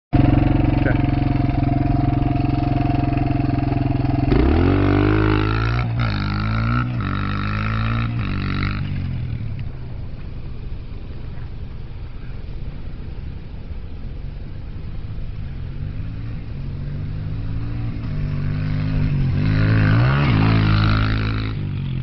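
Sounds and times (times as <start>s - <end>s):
dirt bike engine revving: 0.2s - 9.8s, 14.7s - 22.0s.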